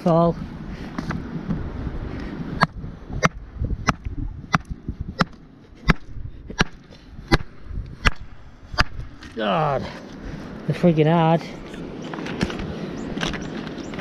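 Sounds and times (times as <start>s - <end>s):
hammer striking rock: 2.6s - 8.2s, 8.8s - 9.0s.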